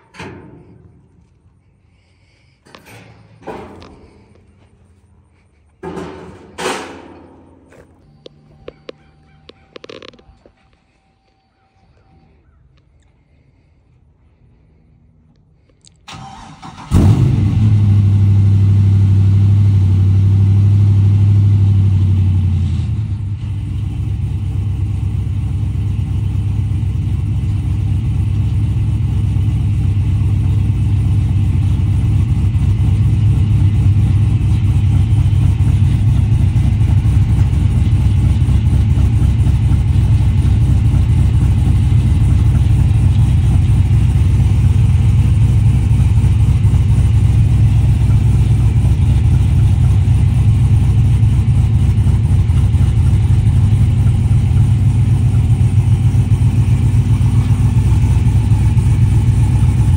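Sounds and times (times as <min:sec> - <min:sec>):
engine starting and idling: 0:00.0 - 0:10.7, 0:16.0 - 0:19.6, 0:29.0 - 0:59.9.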